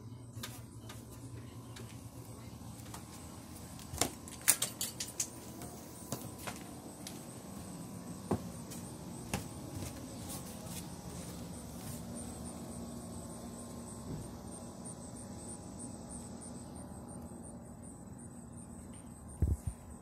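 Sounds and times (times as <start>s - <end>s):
low outdoor background hum: 0.0s - 20.0s
footsteps on wooden steps: 5.5s - 12.1s.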